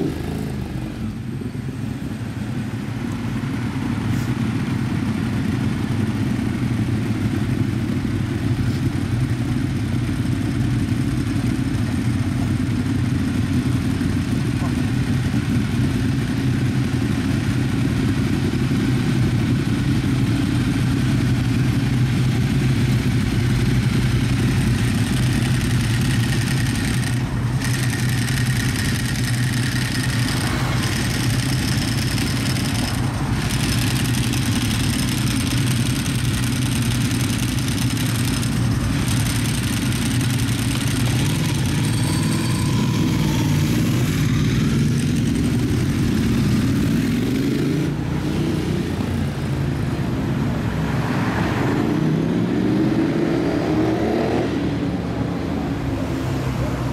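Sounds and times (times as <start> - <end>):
motorcycle pulling away: 0.0 - 49.9
motorcycle engines idling: 0.0 - 51.0.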